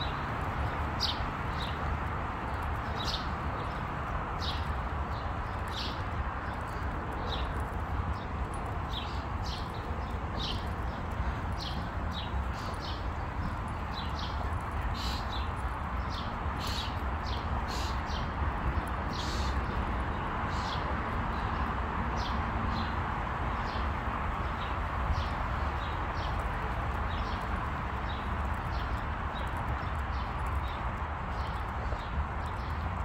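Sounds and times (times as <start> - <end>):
footsteps on a paved path: 0.2 - 20.2, 24.9 - 33.0.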